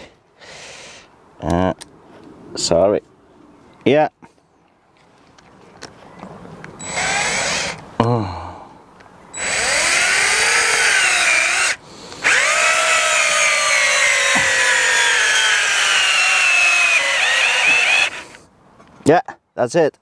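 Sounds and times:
cordless drill whining: 0:06.8 - 0:07.8, 0:09.4 - 0:18.4
screw driven into log: 0:09.4 - 0:18.4.

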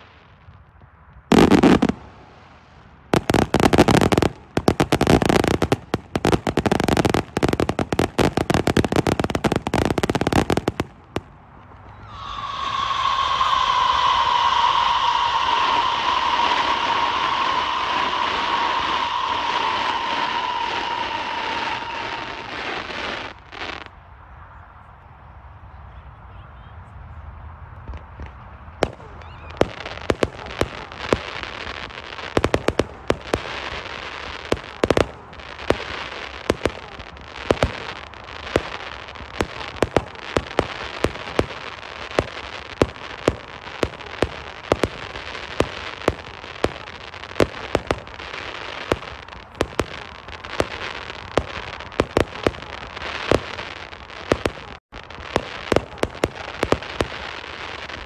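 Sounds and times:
fireworks crackling and banging: 0:00.0 - 0:23.9, 0:27.8 - 0:58.0.

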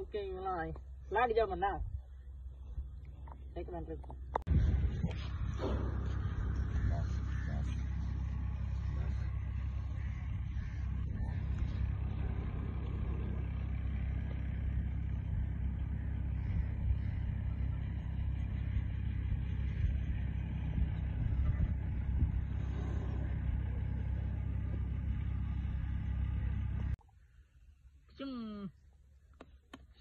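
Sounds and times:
wind buffeting microphone: 0:04.4 - 0:09.0, 0:18.8 - 0:24.0.

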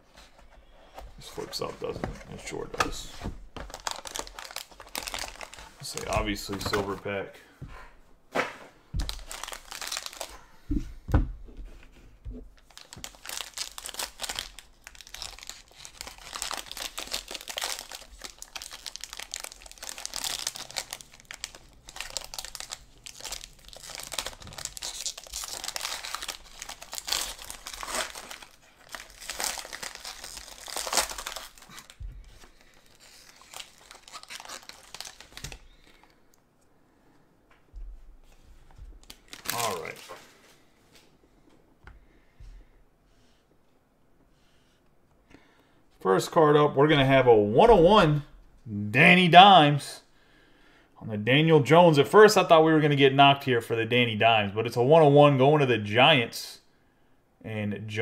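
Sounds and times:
foil wrapper crinkling and tearing: 0:03.6 - 0:06.2, 0:09.0 - 0:10.4, 0:12.6 - 0:36.2, 0:39.0 - 0:40.2.

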